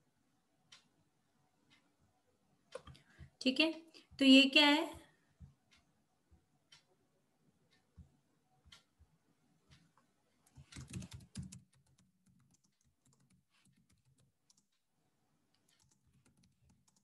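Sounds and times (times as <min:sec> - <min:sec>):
typing on computer keyboard: 0:10.5 - 0:14.8, 0:15.6 - 0:17.0.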